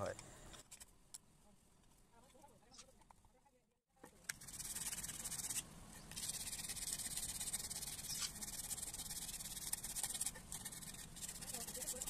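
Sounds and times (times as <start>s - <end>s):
sandpaper rasping on wood: 4.4s - 12.0s.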